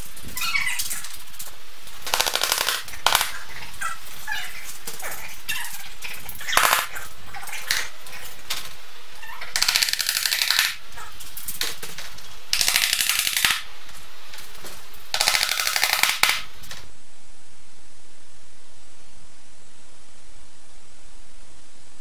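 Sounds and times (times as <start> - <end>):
rapid rattling fastener strikes: 1.1 - 3.6, 9.6 - 10.8, 11.4 - 13.7, 15.1 - 16.8.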